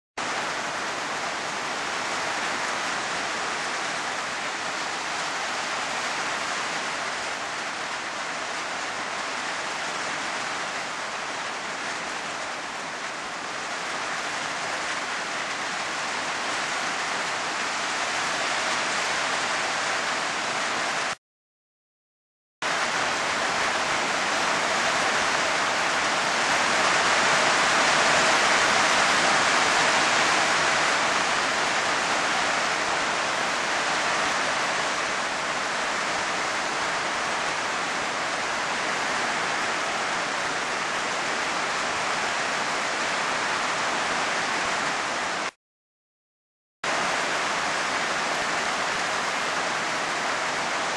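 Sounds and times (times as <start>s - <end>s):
heavy rain hissing: 22.6s - 45.6s, 46.8s - 50.9s.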